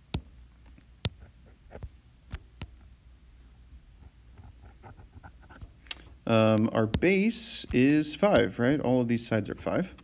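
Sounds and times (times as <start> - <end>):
low room hum: 0.0 - 10.0
stylus tapping on glass screen: 6.6 - 8.6.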